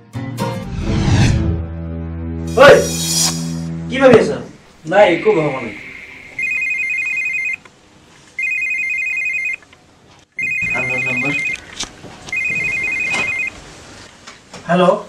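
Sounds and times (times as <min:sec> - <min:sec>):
phone ringing with trilling ringtone: 0:05.0 - 0:07.6, 0:08.4 - 0:09.6, 0:10.4 - 0:11.7, 0:12.3 - 0:13.6.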